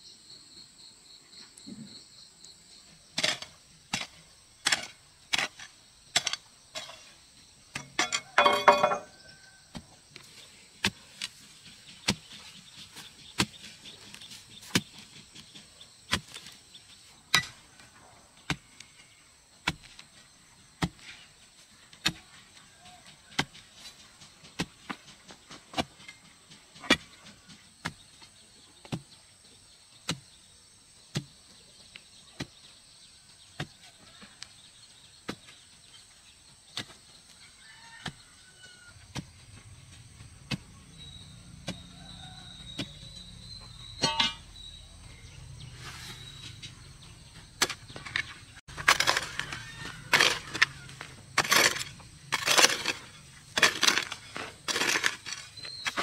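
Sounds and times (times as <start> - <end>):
insects trilling: 0.0 - 56.0
hand tool strikes: 44.0 - 44.6
ringing clatter of quick strikes: 44.0 - 44.6.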